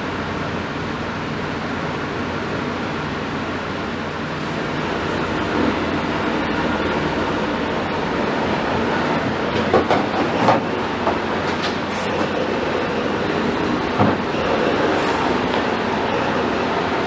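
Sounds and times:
heavy diesel engines running: 0.0s - 17.0s.

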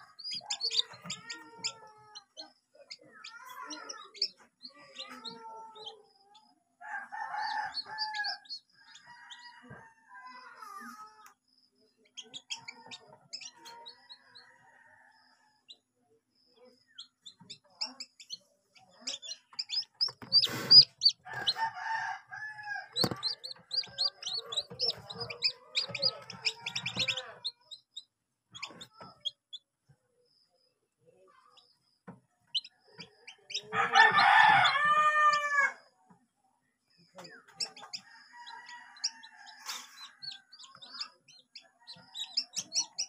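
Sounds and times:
chicks peeping: 0.0s - 6.6s, 7.5s - 9.9s, 11.9s - 14.5s, 16.6s - 29.7s, 31.4s - 35.6s, 37.0s - 43.0s
rooster crowing: 6.8s - 10.4s, 21.2s - 27.3s, 33.6s - 35.8s, 38.0s - 40.4s.

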